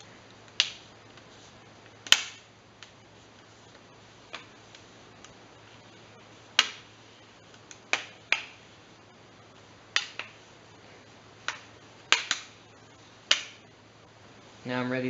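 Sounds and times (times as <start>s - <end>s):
plastic clips snapping: 11.5s - 12.6s.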